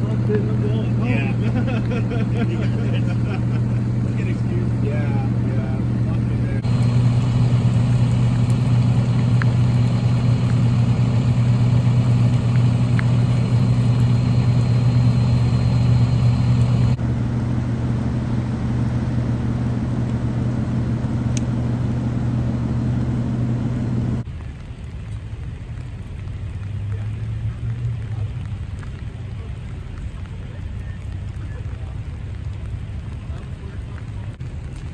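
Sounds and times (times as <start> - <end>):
truck engine running: 0.0 - 24.3
faint low engine hum: 0.0 - 34.9.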